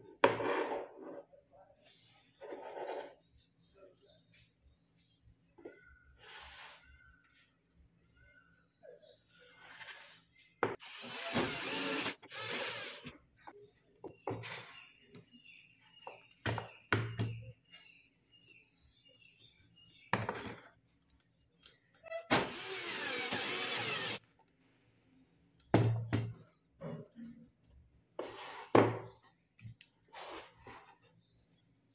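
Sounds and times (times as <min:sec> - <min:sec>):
cordless drill driving screws: 0:10.8 - 0:13.1, 0:22.3 - 0:24.2
parts and screws clicking: 0:10.8 - 0:13.1.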